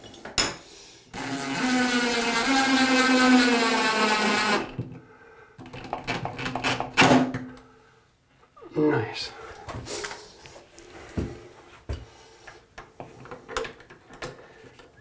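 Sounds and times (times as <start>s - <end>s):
cordless drill motor whining: 1.2s - 4.7s.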